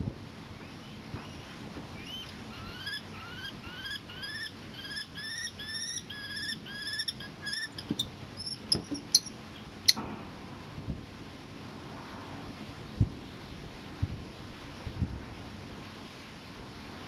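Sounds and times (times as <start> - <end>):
kestrel whining calls: 0.7 - 10.0.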